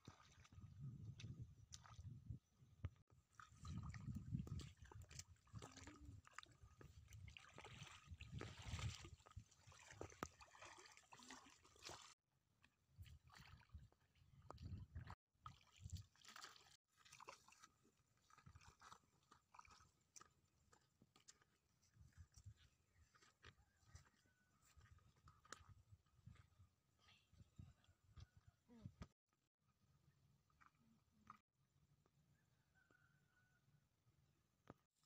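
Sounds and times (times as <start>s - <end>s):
footsteps squelching in mud: 3.3s - 12.2s, 15.5s - 27.1s.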